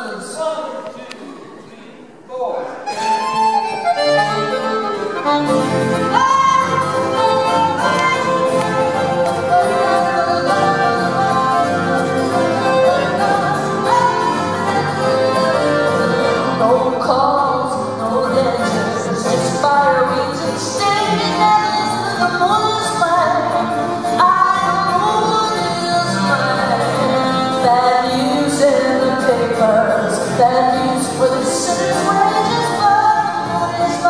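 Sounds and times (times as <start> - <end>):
accordion: 2.8 - 34.0
acoustic guitar: 2.8 - 34.0
voice-like melodic line: 2.9 - 16.9.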